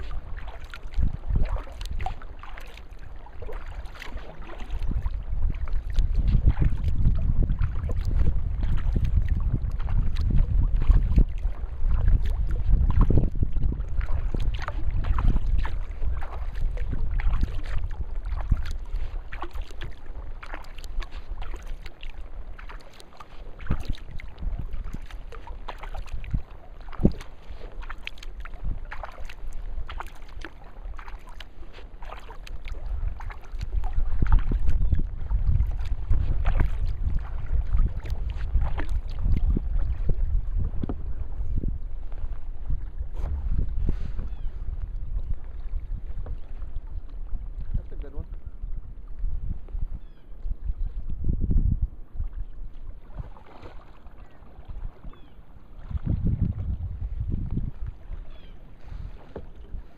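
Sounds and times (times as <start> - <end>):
wind buffeting microphone: 0.0 - 31.4, 32.0 - 59.9
water splashes and drips: 0.0 - 41.0, 52.7 - 56.2.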